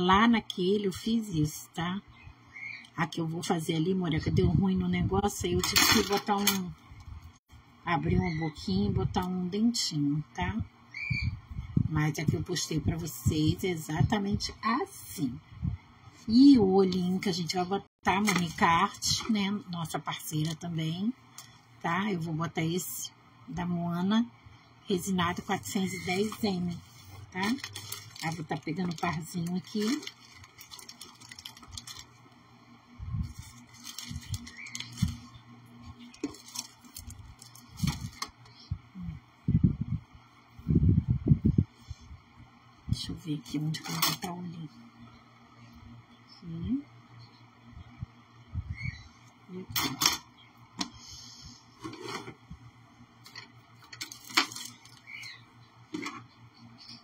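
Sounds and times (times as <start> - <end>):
plastic sheet crinkling: 25.7 - 32.4, 33.2 - 35.4, 36.1 - 38.3, 53.8 - 55.2.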